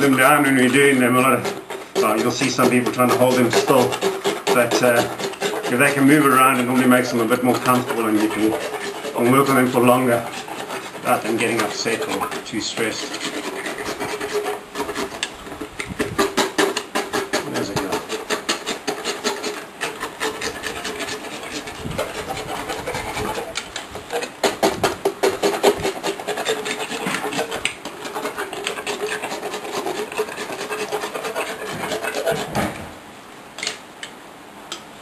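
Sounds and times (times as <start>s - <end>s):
metal rasp grating on teeth: 0.0s - 32.6s.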